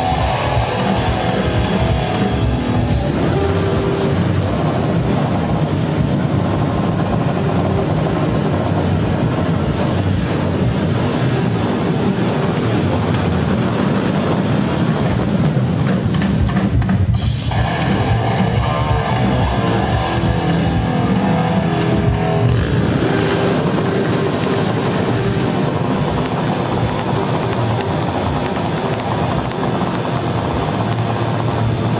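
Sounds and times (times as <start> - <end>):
live rock music: 0.0 - 9.0, 15.8 - 29.7
drum kit: 0.0 - 31.9
electric guitar: 0.0 - 31.9
laptop electronics: 22.5 - 31.9.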